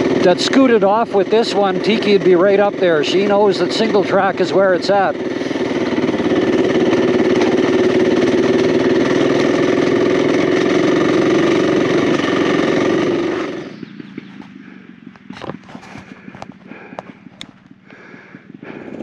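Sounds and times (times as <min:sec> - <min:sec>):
motorcycle engine running: 0:00.0 - 0:19.0.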